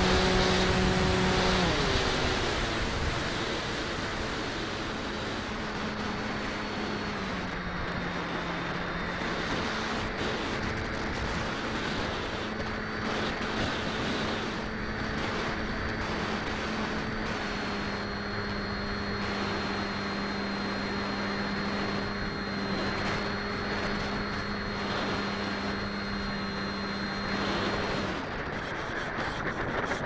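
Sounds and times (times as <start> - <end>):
electric motor and propeller whine: 0.0 - 30.0
wind rush: 0.0 - 30.0.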